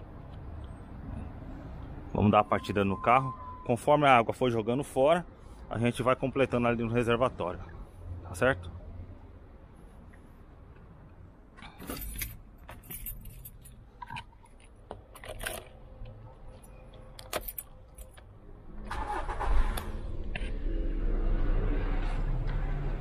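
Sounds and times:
car engine starting and idling: 14.0s - 23.0s.

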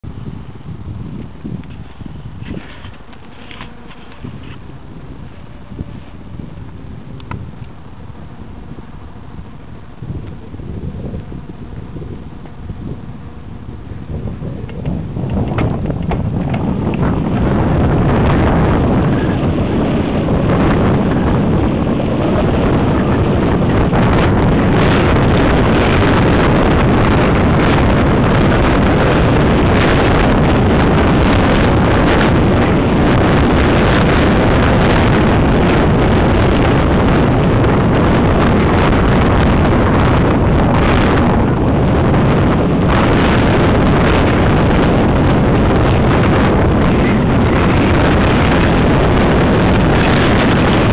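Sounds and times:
wind buffeting microphone: 0.0s - 50.9s
bike rattling over rocks: 1.7s - 5.4s.

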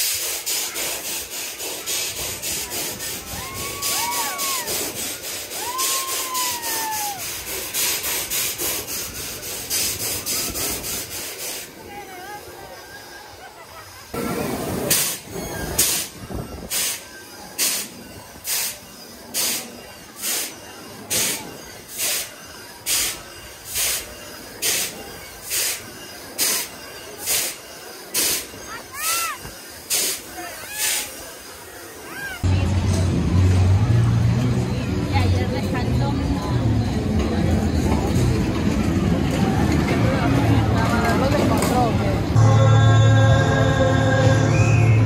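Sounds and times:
fairground ride clattering: 0.0s - 45.0s.

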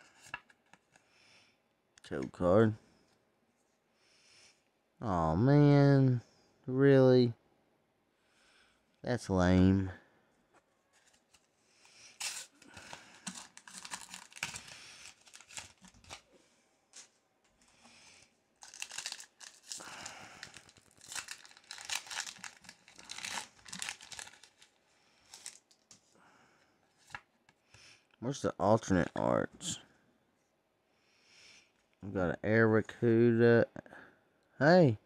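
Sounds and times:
foil wrapper crinkling and tearing: 12.2s - 16.3s, 18.6s - 25.9s.

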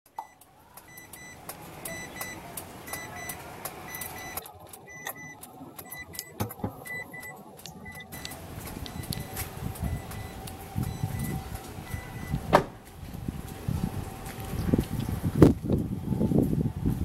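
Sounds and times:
high electronic beeps: 0.2s - 12.4s
low thumps: 7.7s - 15.6s.

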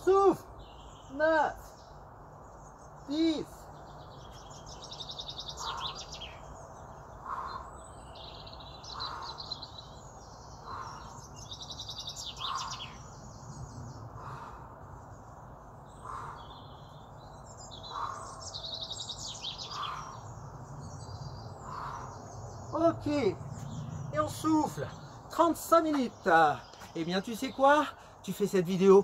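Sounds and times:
songbirds chirping and singing: 0.0s - 29.0s.

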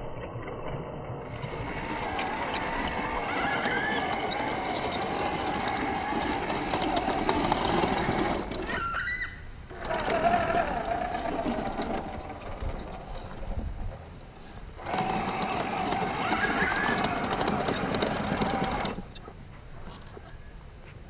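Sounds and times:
small electric motor whining: 1.3s - 13.5s, 14.8s - 19.2s.

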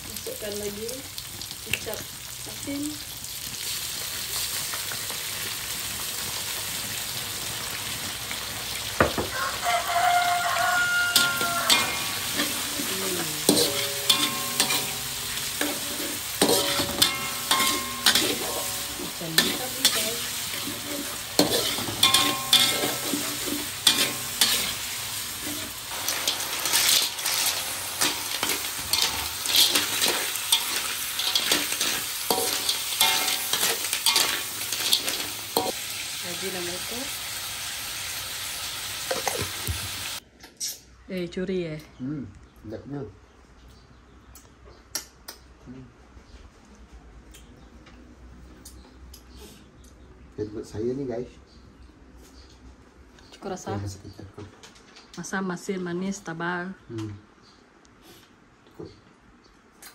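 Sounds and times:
food sizzling in a wok: 0.0s - 40.2s
metal spatula scraping a wok: 11.1s - 35.8s.

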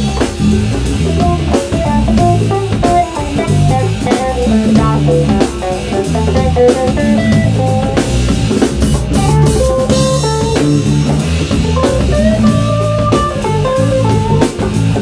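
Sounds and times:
drum kit: 0.0s - 15.0s
electric bass: 0.0s - 15.0s
electric guitar lead: 0.0s - 15.0s.

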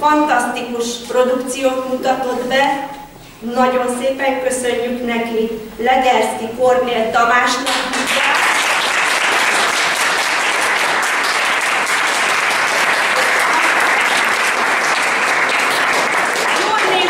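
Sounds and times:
audience applauding: 7.7s - 17.0s.

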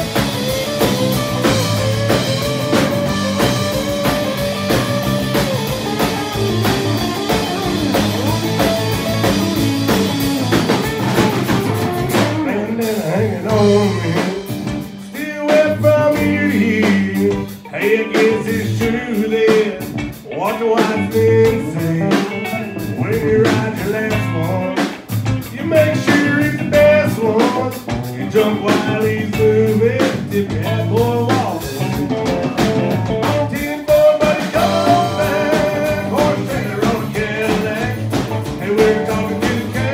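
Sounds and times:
country-rock band playing: 0.0s - 39.9s
man singing: 12.2s - 39.9s.

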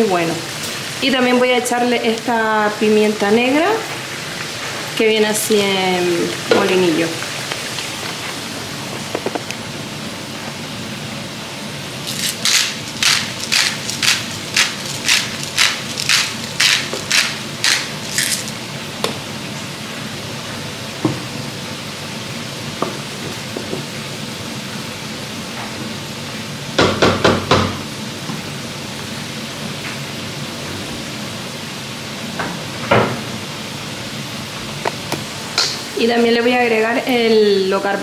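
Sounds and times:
pan sizzling: 0.0s - 20.7s, 31.7s - 37.9s
pepper mill grinding: 12.0s - 18.6s.

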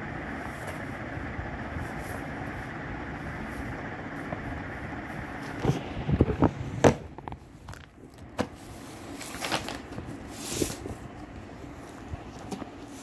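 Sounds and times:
paper rustling: 8.6s - 11.0s.

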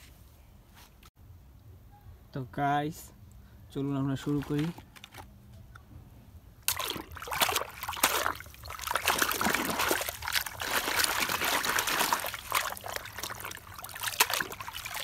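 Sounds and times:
water rushing and splashing: 6.7s - 15.0s.

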